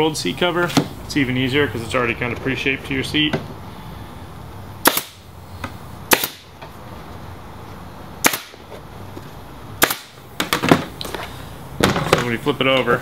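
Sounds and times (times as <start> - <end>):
pneumatic staple gun shots: 4.8 - 5.2, 6.1 - 6.5, 8.2 - 8.6, 9.8 - 11.1.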